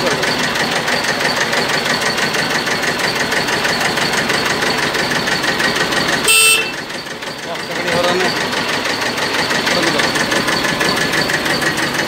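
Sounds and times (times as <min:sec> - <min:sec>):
diesel tractor engine idling: 0:00.0 - 0:12.0
brief loud tone: 0:06.3 - 0:06.8.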